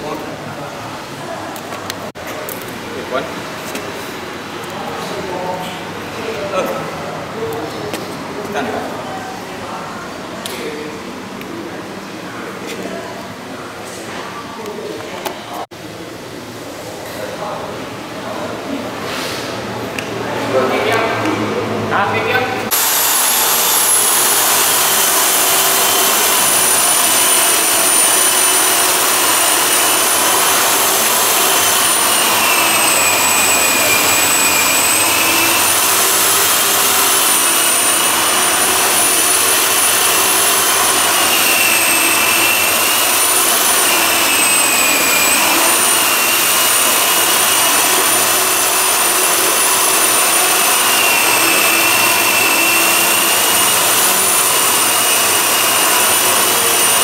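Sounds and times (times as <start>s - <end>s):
power tool whining: 22.7s - 57.0s.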